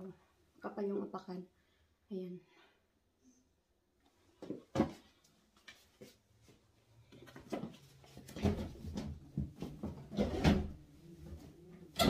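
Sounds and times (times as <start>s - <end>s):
objects knocking and rustling: 4.4s - 5.9s, 7.0s - 11.4s.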